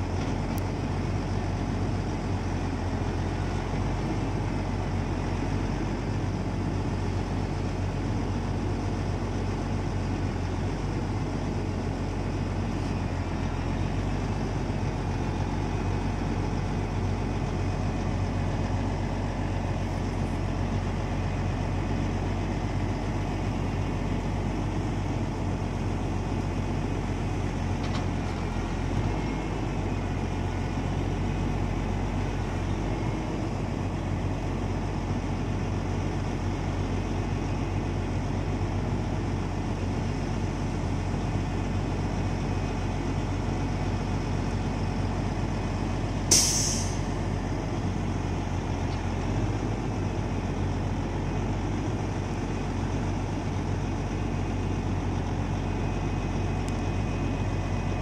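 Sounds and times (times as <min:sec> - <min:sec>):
crane lifting logs: 0:00.0 - 0:58.0
diesel engine running: 0:00.0 - 0:58.0
loud hiss: 0:46.3 - 0:47.1.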